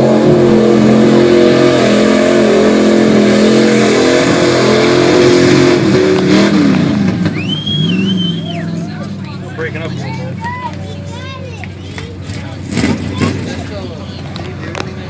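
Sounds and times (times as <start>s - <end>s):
truck engine revving: 0.0s - 15.0s
high whistle: 7.2s - 8.8s.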